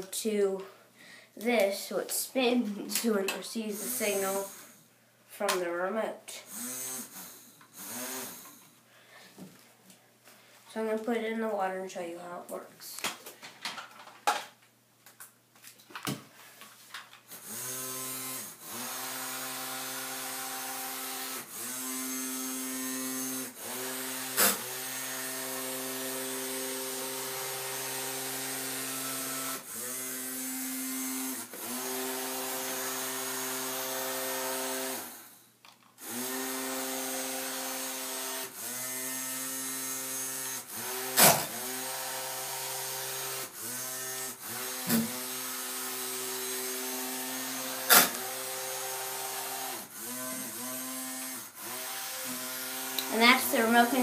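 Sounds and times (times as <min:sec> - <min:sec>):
small electric motor whining: 0:03.7 - 0:04.8, 0:06.5 - 0:08.7, 0:17.3 - 0:35.4, 0:36.0 - 0:54.0.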